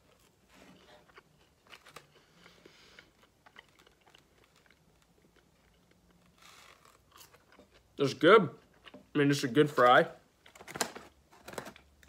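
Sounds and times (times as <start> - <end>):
chewing french fry: 0.1 - 8.0.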